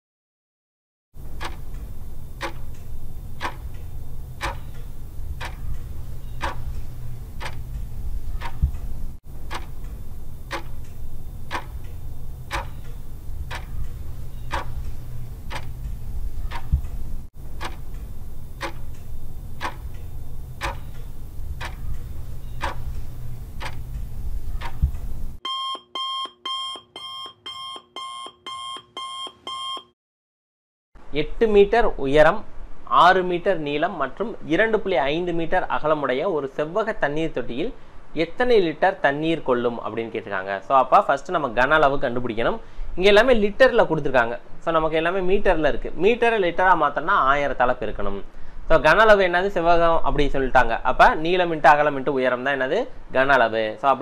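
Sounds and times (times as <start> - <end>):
steady low hum: 1.2 - 25.4
timer ticking: 1.2 - 28.9
rapid electronic alarm beeping: 9.5 - 15.8, 24.4 - 29.9.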